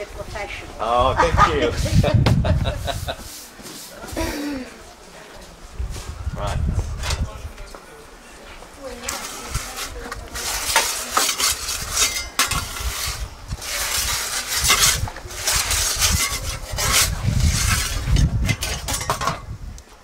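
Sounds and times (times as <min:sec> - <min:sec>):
metal pizza peel scraping: 0:09.0 - 0:19.5.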